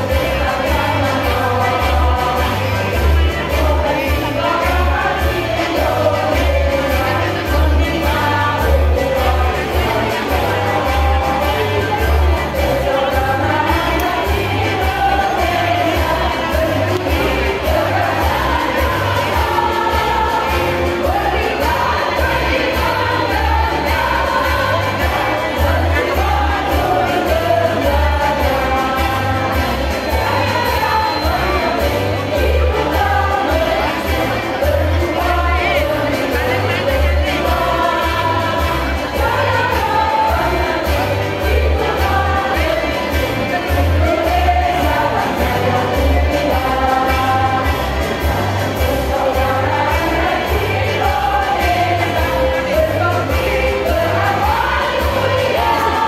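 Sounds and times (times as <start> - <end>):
women's choir singing: 0.0 - 56.0.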